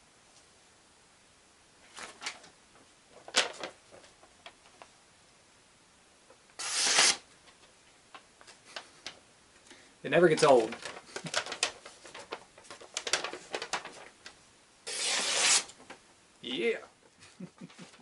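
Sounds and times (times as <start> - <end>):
paper rustling and crinkling: 1.8 - 4.9, 10.2 - 16.0.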